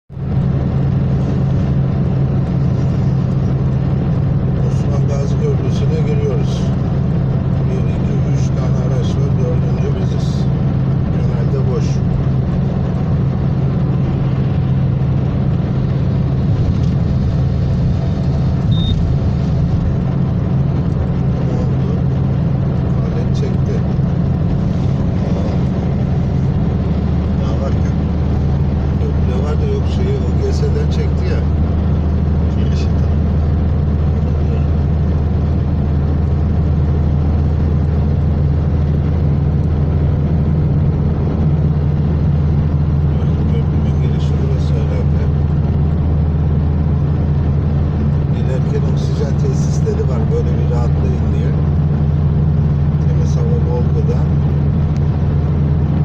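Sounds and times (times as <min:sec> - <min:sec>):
car road and engine drone: 0:00.0 - 0:56.0
short high beep: 0:18.7 - 0:19.0.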